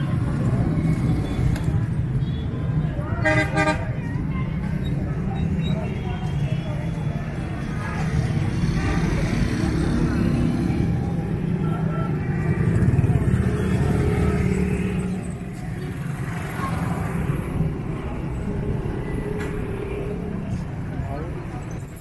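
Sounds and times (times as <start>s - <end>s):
people talking: 2.7s - 18.3s.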